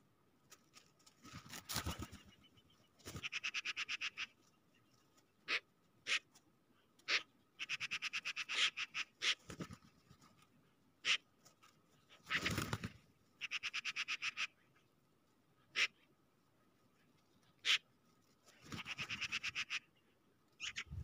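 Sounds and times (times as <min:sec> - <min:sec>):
magpies chattering: 0:01.8 - 0:06.3, 0:07.0 - 0:09.8, 0:12.1 - 0:14.9, 0:15.7 - 0:16.1, 0:17.4 - 0:17.9, 0:18.5 - 0:20.0, 0:20.6 - 0:21.0.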